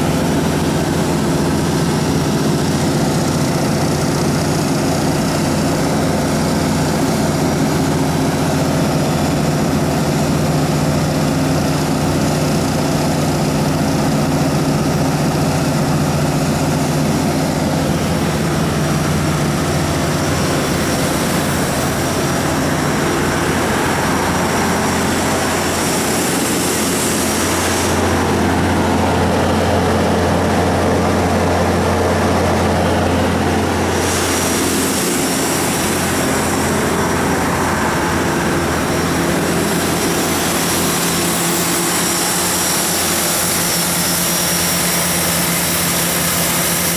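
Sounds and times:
diesel generator running: 0.0 - 46.9
hiss: 33.7 - 46.9.

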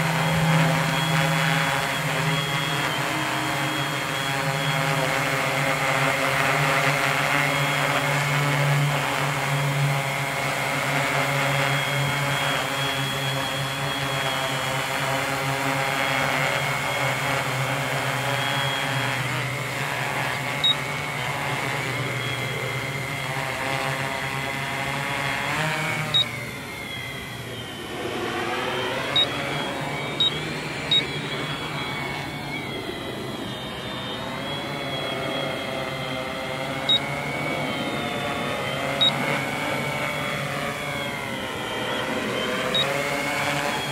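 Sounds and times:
short high blips: 0.0 - 32.8
drone motors buzzing: 0.0 - 43.9.

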